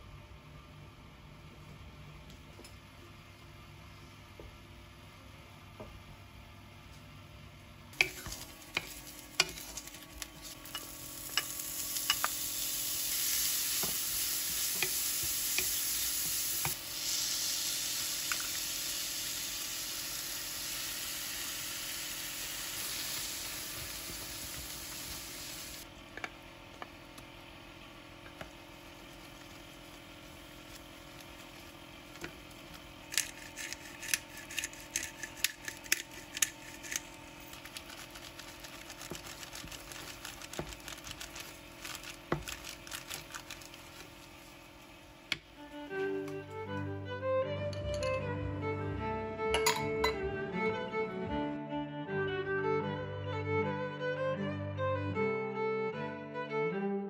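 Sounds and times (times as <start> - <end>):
food sizzling in frying pan: 8.0 - 25.8.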